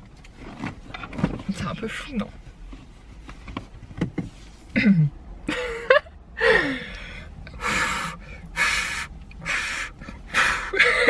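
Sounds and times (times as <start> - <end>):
person gasping breaths: 6.4 - 10.9.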